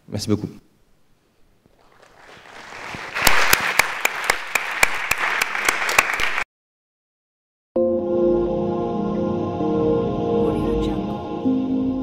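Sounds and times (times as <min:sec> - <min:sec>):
audience applauding: 0:01.8 - 0:06.4.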